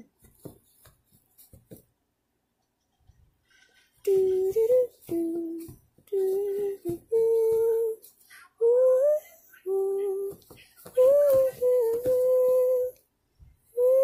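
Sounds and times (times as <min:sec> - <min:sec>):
woman humming a slow tune: 0:04.0 - 0:08.0, 0:08.6 - 0:10.4, 0:11.0 - 0:13.0, 0:13.8 - 0:14.0.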